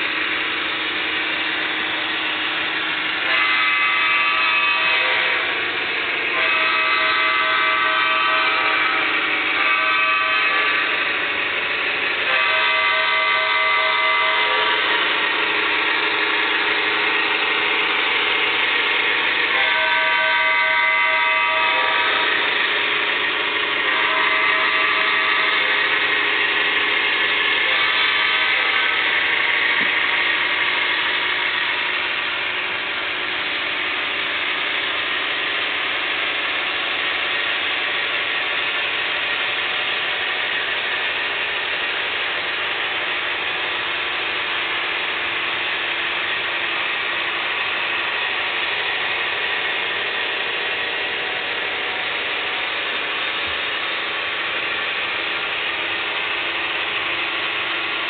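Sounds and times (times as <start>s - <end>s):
model train wheels clattering on rails: 21.9s - 58.0s.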